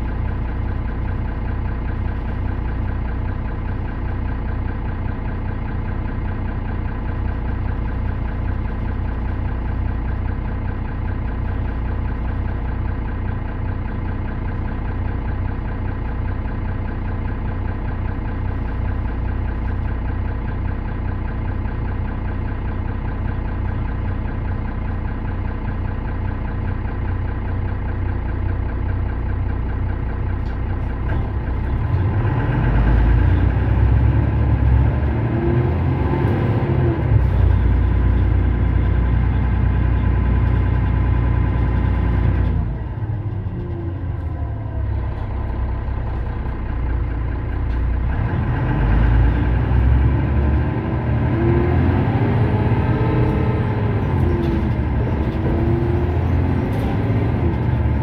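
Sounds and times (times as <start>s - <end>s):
bus engine idling: 0.0s - 58.0s
rough low rumble: 30.4s - 58.0s.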